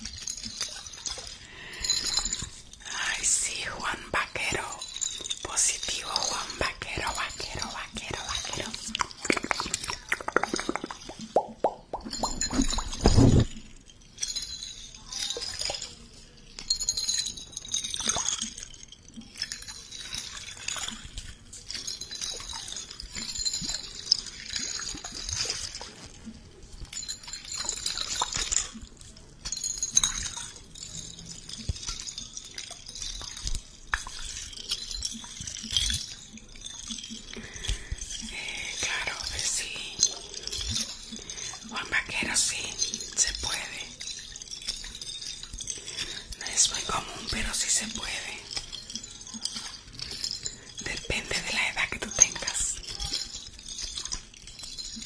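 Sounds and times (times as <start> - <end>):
wet crackling sounds: 2.4 - 13.8.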